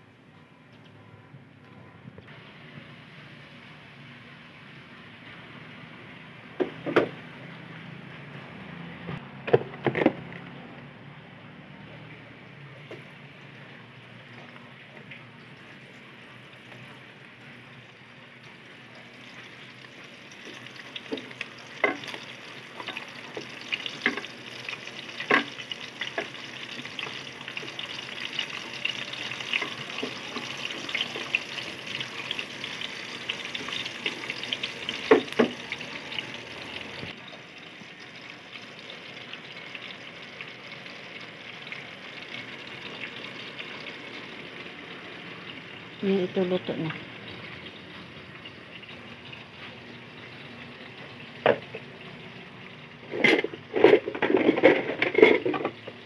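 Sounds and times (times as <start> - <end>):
fish sizzling in hot oil: 15.4 - 54.2.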